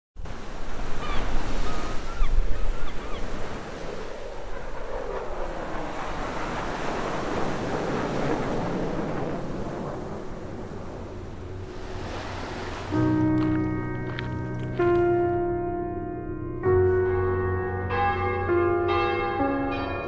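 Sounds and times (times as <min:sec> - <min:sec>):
sea surf rushing: 0:00.2 - 0:15.4
wind: 0:00.2 - 0:20.0.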